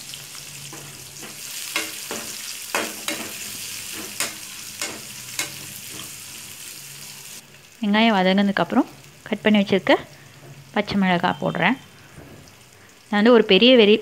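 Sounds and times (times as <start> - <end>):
onions sizzling in oil: 0.0 - 14.0
metal spatula scraping a pan: 0.4 - 7.1.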